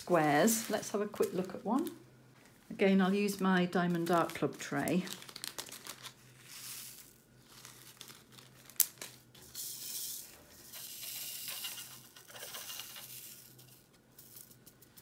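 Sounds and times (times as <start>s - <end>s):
plastic bag crinkling: 0.0s - 2.0s, 2.7s - 9.6s
resin beads rattling in plastic tray: 9.6s - 15.0s.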